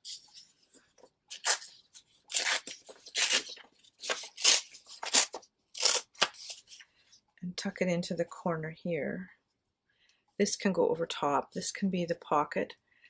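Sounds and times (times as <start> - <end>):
paper tearing: 1.3 - 6.8.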